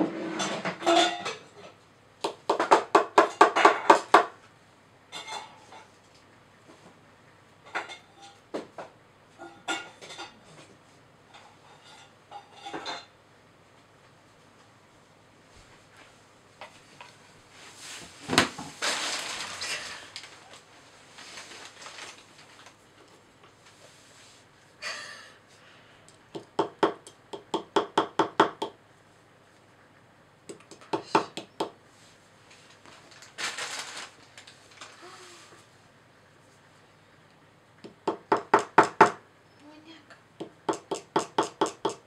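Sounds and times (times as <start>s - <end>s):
mallet tapping chisel: 26.3s - 28.8s, 40.4s - 42.0s.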